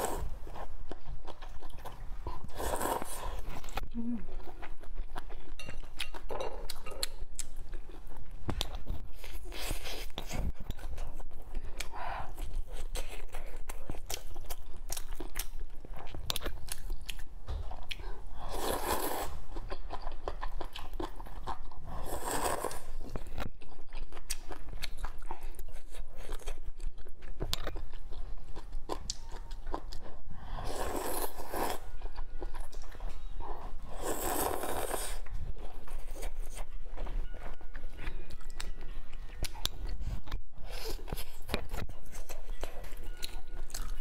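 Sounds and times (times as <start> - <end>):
wet chewing and crunchy bites: 4.5 - 44.0.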